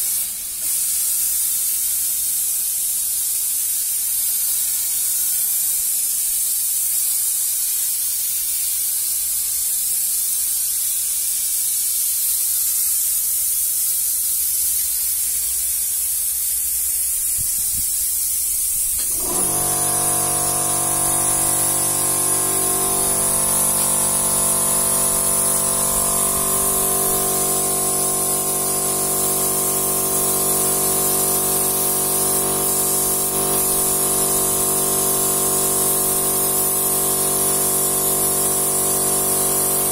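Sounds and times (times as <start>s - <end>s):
paint spray gun hissing: 0.0s - 39.9s
multi-tone hum: 19.0s - 35.4s.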